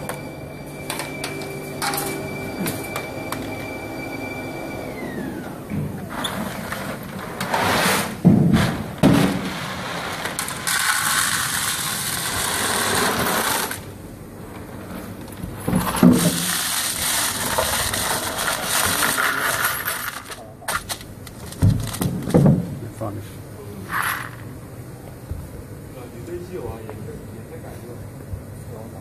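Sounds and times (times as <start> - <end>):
hard pellets rattling and clinking: 10.4 - 13.8, 15.8 - 20.5, 23.9 - 24.5.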